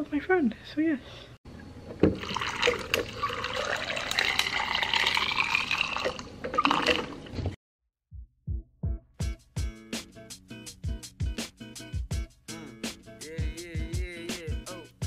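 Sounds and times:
water pouring into a cup: 0:02.1 - 0:07.4.

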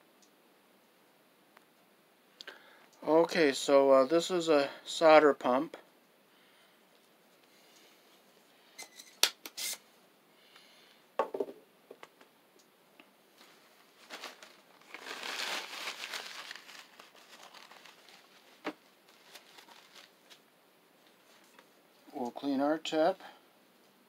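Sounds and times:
knock on wooden table: 0:11.2 - 0:12.0
rustling: 0:13.3 - 0:22.1.

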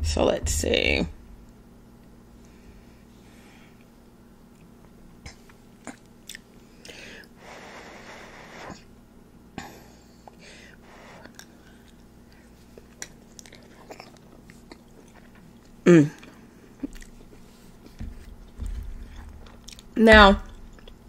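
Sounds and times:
person chewing: 0:04.5 - 0:07.3, 0:11.2 - 0:21.0.

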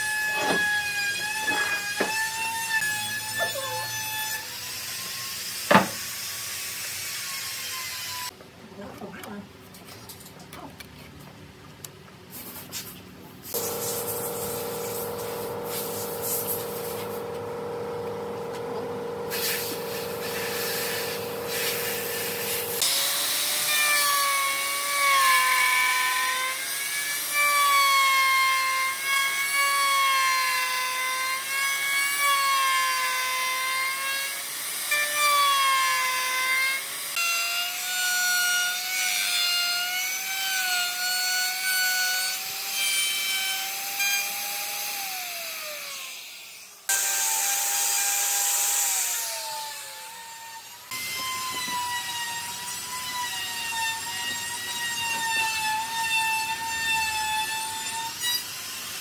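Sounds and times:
router cutting wood: 0:13.5 - 0:59.0
router whining: 0:13.6 - 0:23.7, 0:45.5 - 0:59.0.

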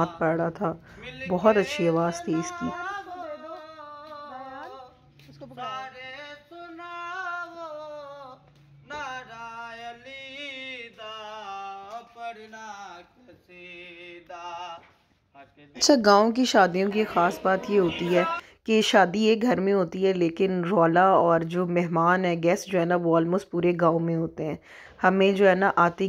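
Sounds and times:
man singing devotional chant: 0:00.0 - 0:15.8, 0:16.7 - 0:18.5.

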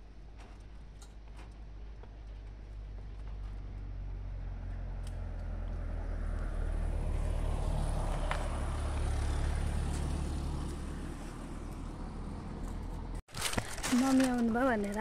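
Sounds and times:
car driving past: 0:03.8 - 0:13.2.

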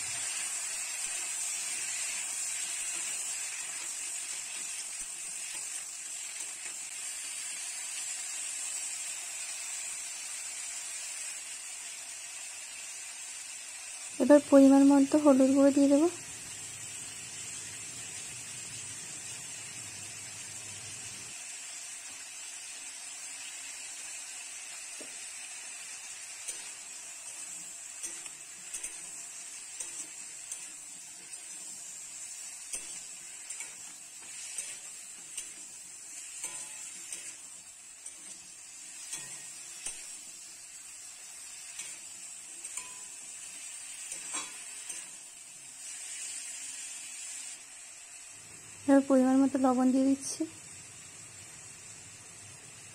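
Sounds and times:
hot oil hissing: 0:00.0 - 0:52.9
metal spatula scraping a pan: 0:26.3 - 0:40.4, 0:41.2 - 0:46.9.

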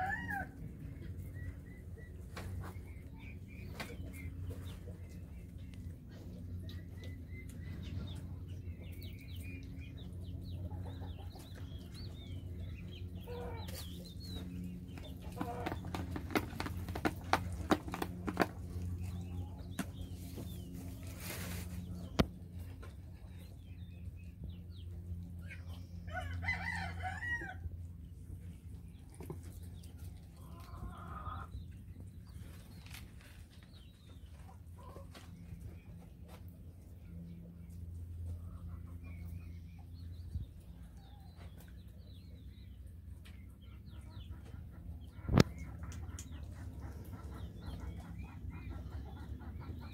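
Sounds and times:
chickens chirping and clucking: 0:00.0 - 0:49.9
steady low hum: 0:00.0 - 0:49.9.

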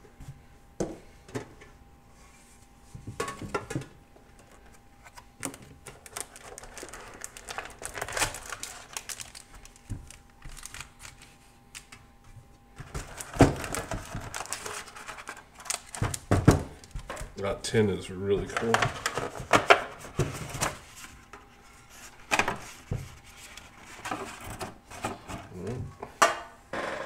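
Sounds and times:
foil packs crinkling: 0:05.4 - 0:11.9, 0:12.8 - 0:17.4.

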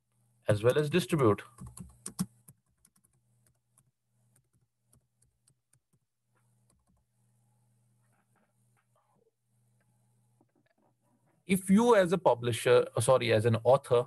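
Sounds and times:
computer keyboard typing: 0:01.5 - 0:06.0, 0:06.6 - 0:07.1.

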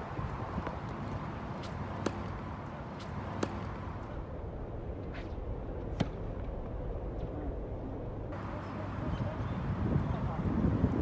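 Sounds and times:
tennis ball struck and bouncing: 0:00.6 - 0:04.1, 0:05.9 - 0:06.4.

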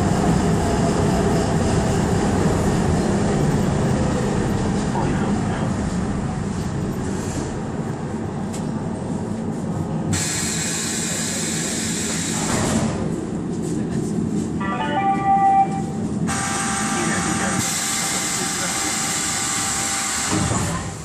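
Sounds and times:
train running rumble: 0:00.0 - 0:21.0
hiss of released air: 0:10.2 - 0:12.5.

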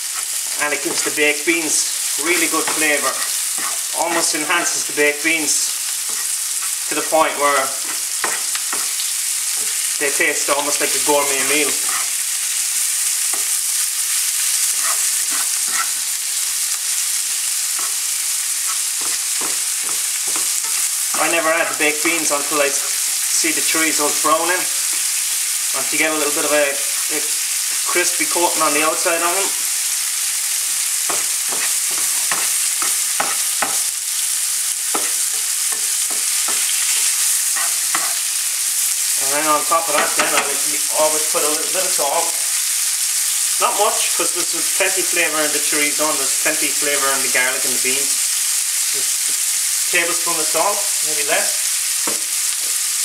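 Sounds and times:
spatula scraping pan: 0:00.0 - 0:12.4, 0:13.3 - 0:16.4, 0:17.5 - 0:29.6, 0:30.8 - 0:33.9, 0:34.8 - 0:38.4
sausage sizzling in frying pan: 0:00.0 - 0:53.0.

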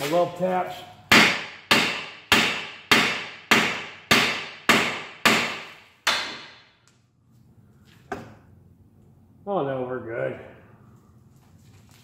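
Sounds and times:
hammer striking steel: 0:01.1 - 0:06.7.

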